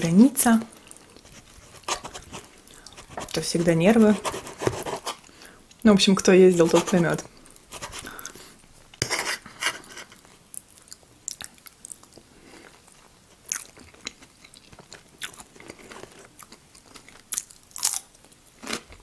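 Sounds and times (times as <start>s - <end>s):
woman chewing food: 0.7s - 3.4s, 7.3s - 9.0s, 10.2s - 19.0s.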